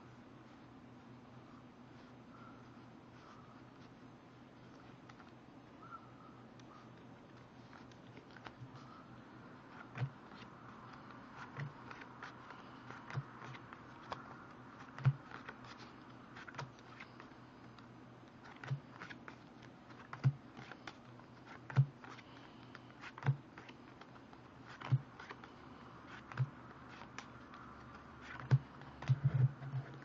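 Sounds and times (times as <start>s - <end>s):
playing cards rustling: 7.0s - 9.0s, 9.6s - 30.0s.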